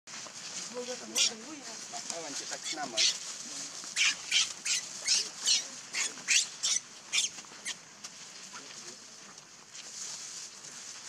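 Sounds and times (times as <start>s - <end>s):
baby monkey screaming: 2.6s - 3.2s, 4.0s - 7.8s.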